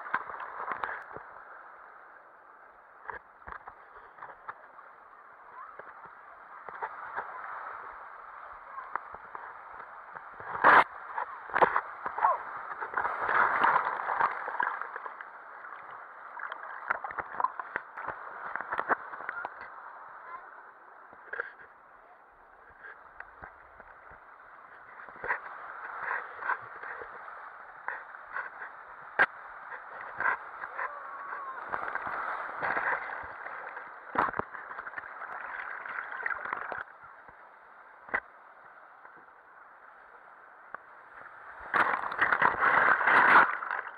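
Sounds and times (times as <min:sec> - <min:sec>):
water splashing and gurgling: 0:00.0 - 0:43.9
water rushing on water slide: 0:27.8 - 0:37.1.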